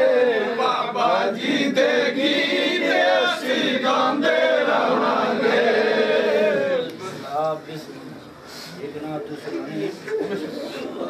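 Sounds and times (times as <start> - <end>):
men chanting together: 0.0 - 6.9.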